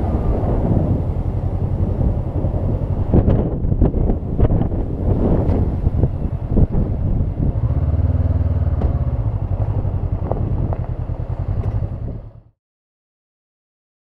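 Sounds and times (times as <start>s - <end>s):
motorcycle engine running: 0.0s - 12.6s.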